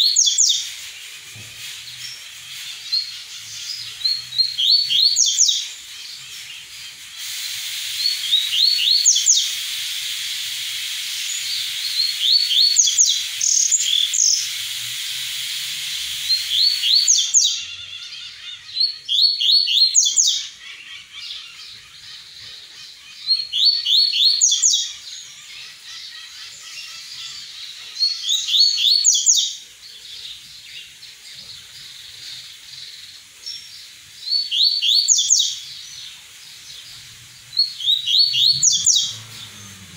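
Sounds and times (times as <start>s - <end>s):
bird singing high notes: 37.5s - 39.9s.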